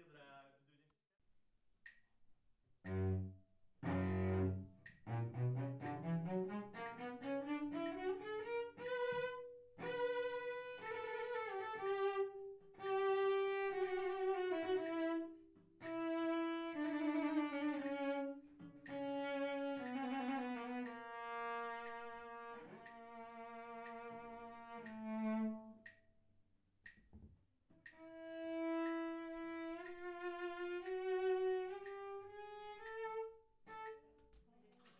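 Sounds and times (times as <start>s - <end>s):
bowed string instrument with vibrato: 2.8s - 25.9s.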